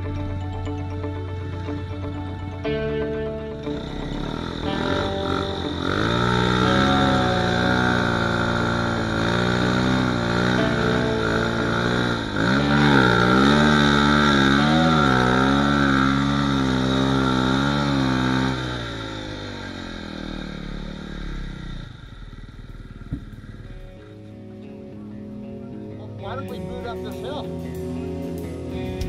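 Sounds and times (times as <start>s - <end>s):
snowmobile engine revving: 3.5s - 24.2s.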